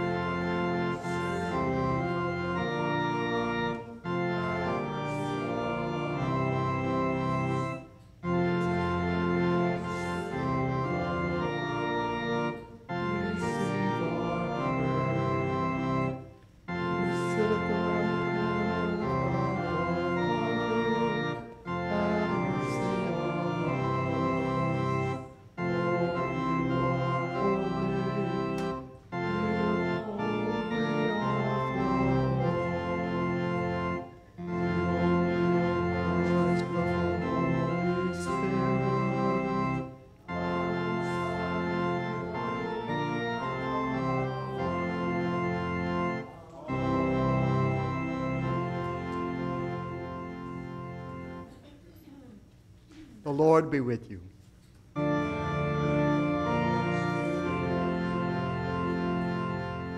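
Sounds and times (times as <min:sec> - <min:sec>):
church organ playing chords: 0:00.0 - 0:51.8, 0:53.3 - 0:59.9.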